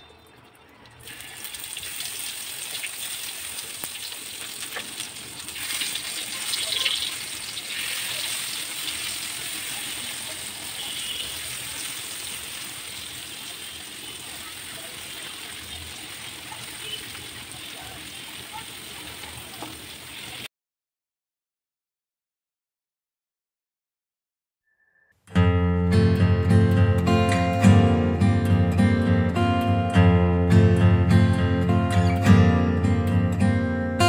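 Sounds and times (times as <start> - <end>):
omelette sizzling in hot oil: 1.0 - 20.5.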